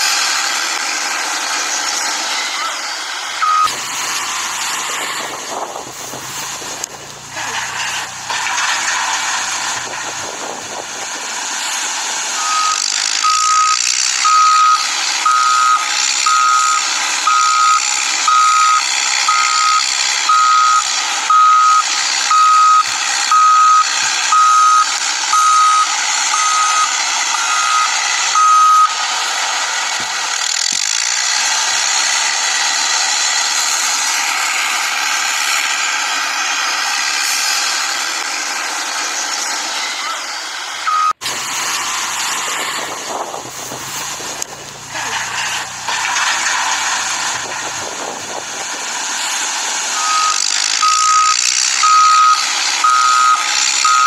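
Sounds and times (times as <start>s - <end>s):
electronic warning beeper: 3.4s - 3.8s, 12.4s - 29.0s, 40.9s - 41.2s, 50.0s - 54.0s.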